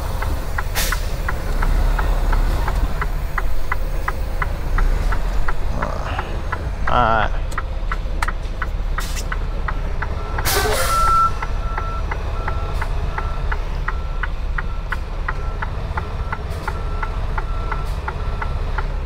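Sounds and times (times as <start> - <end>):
diesel engine idling: 0.0 - 19.0
truck backup alarm beeping: 9.7 - 19.0.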